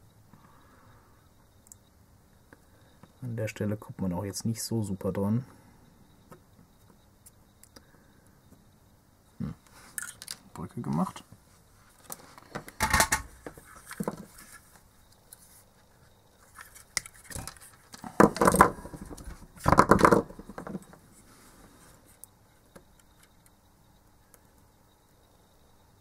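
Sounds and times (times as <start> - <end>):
tools clattering on workbench: 12.8 - 13.3.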